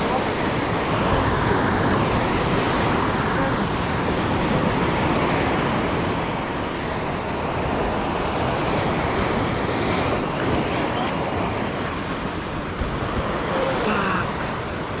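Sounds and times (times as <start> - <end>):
surf breaking against rocks: 0.0 - 15.0
wind buffeting microphone: 0.0 - 15.0.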